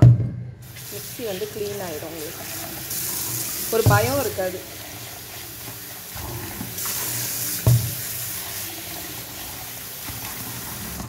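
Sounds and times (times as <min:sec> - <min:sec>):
tap water running into steel jar: 0:00.6 - 0:11.0.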